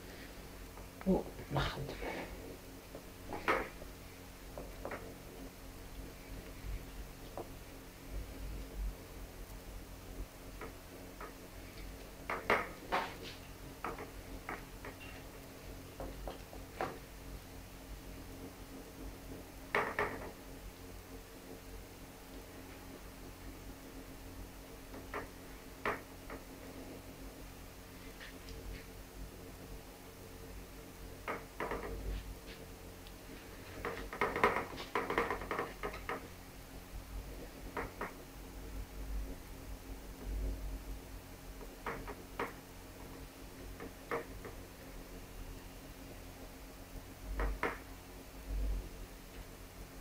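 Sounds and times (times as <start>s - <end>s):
faint steady hum: 0.0s - 50.0s.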